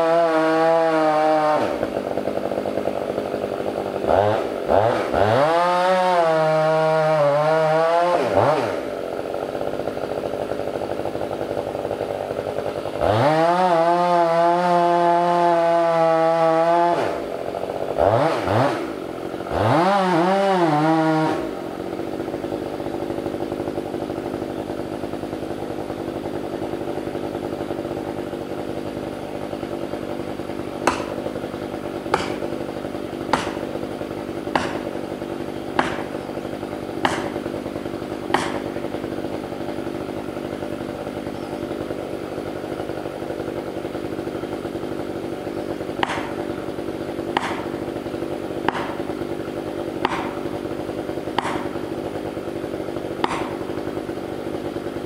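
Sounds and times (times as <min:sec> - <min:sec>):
chainsaw cutting and idling: 0:00.0 - 0:55.0
sharp knocks: 0:30.8 - 0:31.3, 0:32.1 - 0:32.6, 0:33.3 - 0:33.7, 0:34.5 - 0:35.0, 0:35.8 - 0:36.2, 0:37.0 - 0:37.5, 0:38.3 - 0:38.7, 0:46.0 - 0:46.4, 0:47.3 - 0:47.8, 0:48.7 - 0:49.1, 0:50.0 - 0:50.4, 0:51.4 - 0:51.8, 0:53.2 - 0:53.7.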